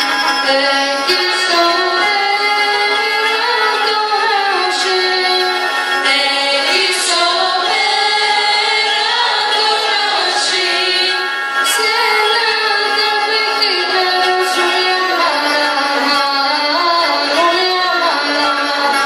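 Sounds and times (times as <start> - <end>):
bowed string instrument: 0.0 - 19.0
choir of female voices singing: 0.5 - 19.0.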